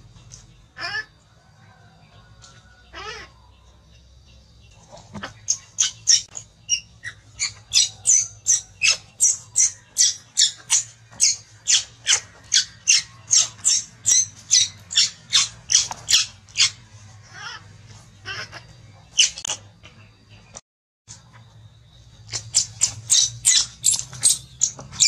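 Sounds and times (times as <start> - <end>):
baby monkey shrieking: 2.9 - 3.4, 5.8 - 19.5, 22.3 - 24.4.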